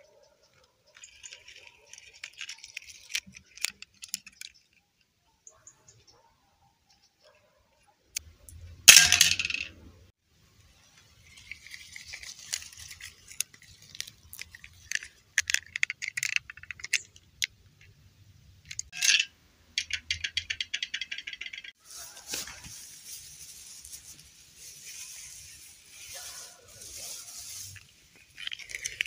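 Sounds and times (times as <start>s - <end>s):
grass and foliage rustling: 0.9s - 4.8s, 10.5s - 17.0s, 20.7s - 29.0s.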